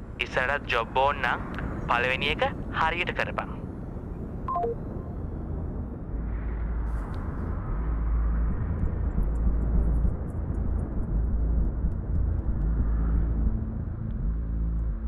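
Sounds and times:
steady low hum: 0.0 - 15.0
car engine and tyre rumble: 3.6 - 15.0.

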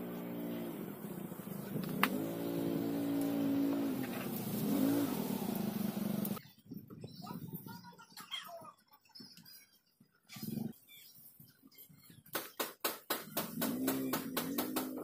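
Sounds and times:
vehicle engine revving: 0.0 - 6.4, 13.5 - 15.0.

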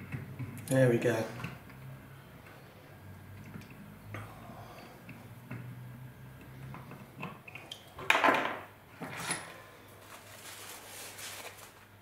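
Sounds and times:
tissue paper rustling: 10.0 - 12.0.

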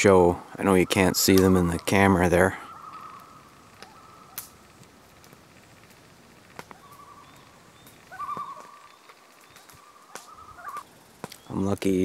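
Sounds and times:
loons tremolo calls: 0.0 - 11.1
sharp clicks: 3.0 - 11.9.

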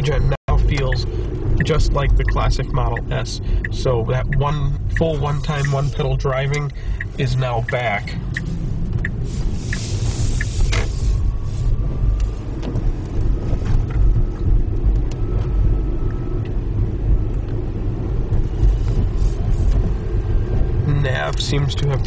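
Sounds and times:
short hiss: 8.4 - 11.2.

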